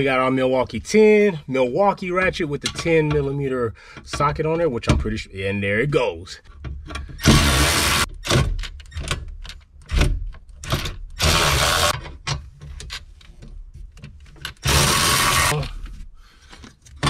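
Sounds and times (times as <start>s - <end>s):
cordless ratchet spinning: 11.2s - 12.0s, 14.6s - 15.6s.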